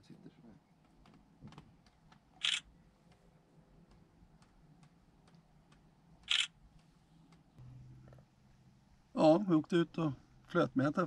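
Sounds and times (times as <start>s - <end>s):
camera shutter clicks: 2.4s - 2.6s, 6.3s - 6.5s.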